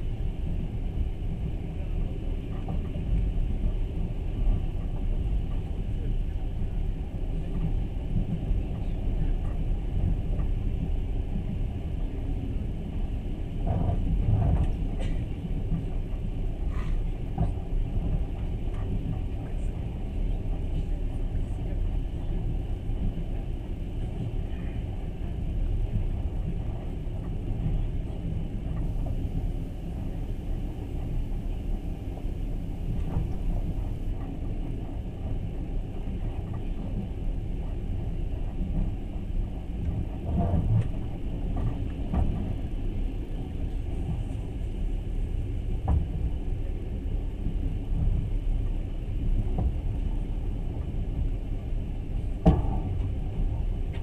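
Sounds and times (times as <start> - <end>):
train rumble inside carriage: 0.0 - 54.0.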